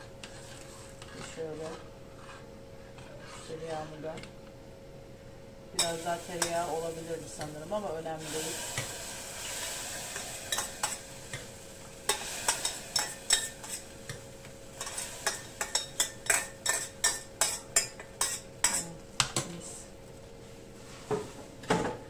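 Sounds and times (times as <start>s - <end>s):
spoon clinking in a pot: 12.1s - 14.2s, 14.8s - 18.9s.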